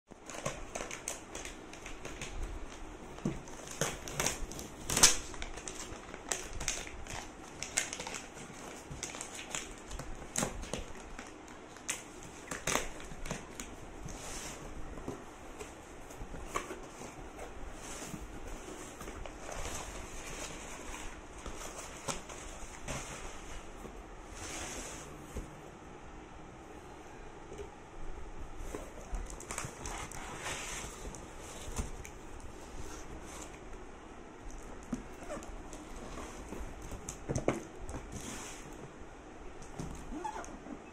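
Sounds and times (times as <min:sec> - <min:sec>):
packing tape scraping and crackling: 0:00.1 - 0:14.8, 0:15.6 - 0:23.7, 0:28.7 - 0:33.6.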